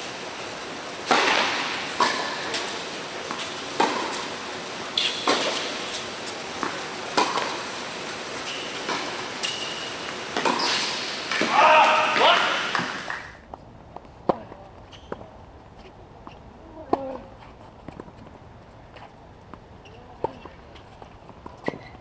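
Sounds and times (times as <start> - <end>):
racket hitting tennis ball: 1.0 - 13.3, 20.2 - 22.0
tennis ball bouncing: 1.0 - 13.3, 16.2 - 22.0.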